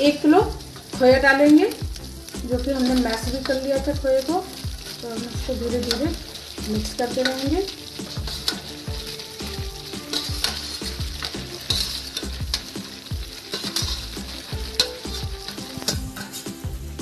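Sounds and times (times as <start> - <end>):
flour sizzling in a pan: 0.0 - 17.0
steel scraping and clicking on steel: 7.1 - 9.2, 9.9 - 16.6.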